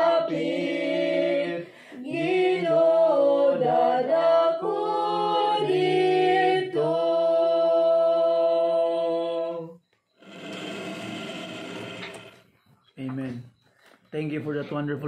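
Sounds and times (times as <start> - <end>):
woman and children singing a hymn: 0.0 - 9.8.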